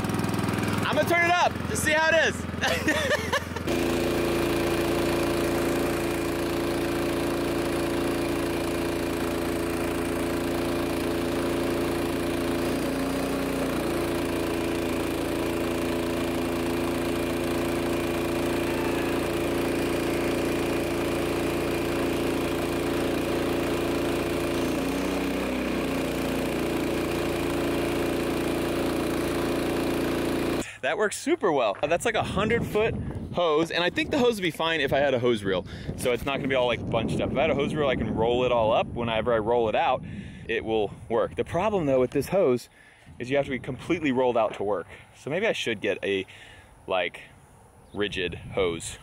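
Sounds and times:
gas engine running under load: 0.0s - 30.8s.

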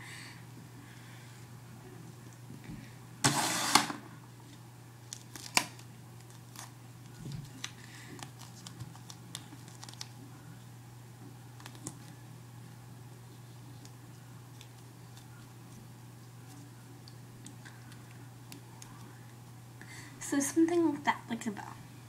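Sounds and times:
tape clicking and crackling: 4.5s - 10.2s, 11.2s - 12.2s, 13.6s - 19.3s
tape ripping: 5.1s - 6.7s.

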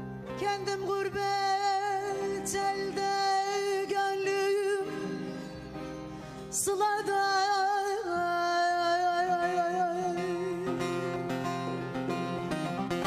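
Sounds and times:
instrumental accompaniment: 0.0s - 13.0s
woman singing: 0.4s - 5.3s, 6.6s - 10.9s.

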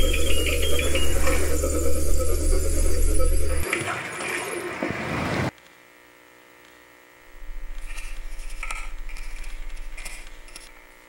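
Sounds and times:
pulsing electrical buzz: 0.0s - 3.6s, 5.8s - 11.0s
faint electrical hum: 5.5s - 11.0s.

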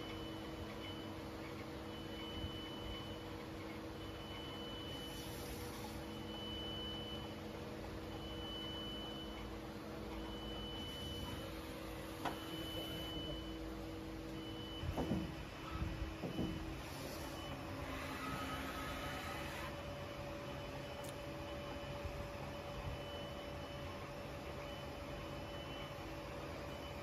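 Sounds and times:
lathe machine hum: 17.6s - 19.8s.

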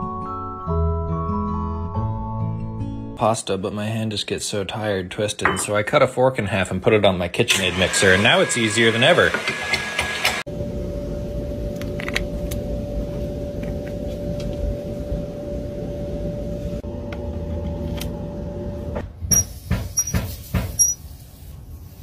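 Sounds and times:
steady hum with whine: 10.5s - 19.0s.

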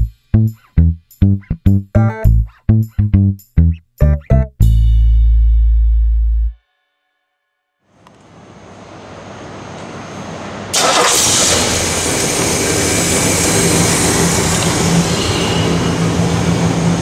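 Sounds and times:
car engine starting and idling: 10.1s - 17.0s.

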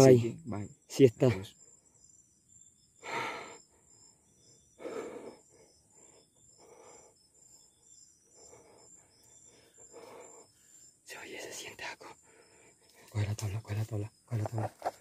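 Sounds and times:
faint insect chirping: 0.0s - 15.0s
person breathing heavily: 3.0s - 4.0s, 4.7s - 11.0s, 12.0s - 13.2s.

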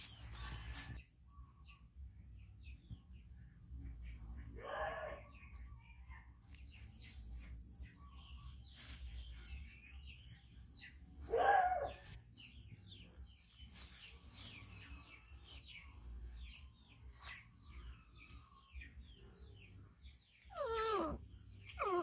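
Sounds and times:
puppy yelping: 20.5s - 22.0s.

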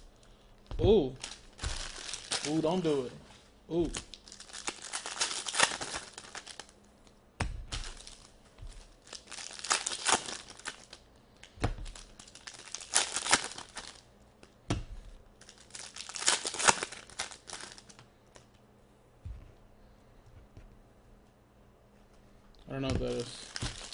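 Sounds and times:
foil wrappers tearing and crinkling: 1.1s - 6.8s, 7.7s - 14.0s, 15.4s - 18.0s, 23.0s - 23.9s.

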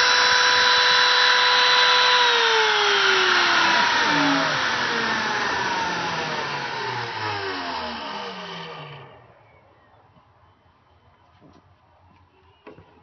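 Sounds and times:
router motor whine winding down: 0.0s - 9.9s.

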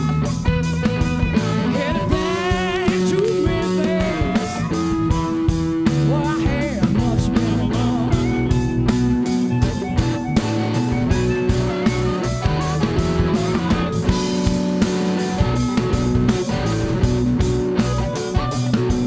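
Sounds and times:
bending lead guitar line: 0.0s - 19.0s
blues band playing: 0.0s - 19.0s.

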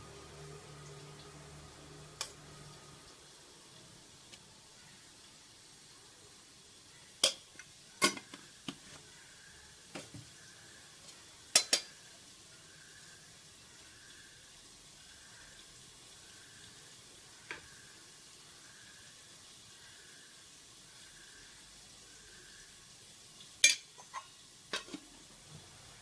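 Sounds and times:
faint steady hiss: 0.0s - 26.0s
metal spoons clinking on pot: 7.2s - 8.4s, 11.5s - 12.0s, 23.6s - 25.0s.

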